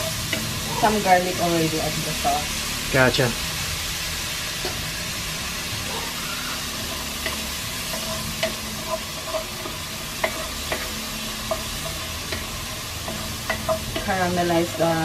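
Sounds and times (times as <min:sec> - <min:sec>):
onion sizzling in hot oil: 0:00.0 - 0:15.0
wooden spoon knocking and scraping pot: 0:06.8 - 0:15.0.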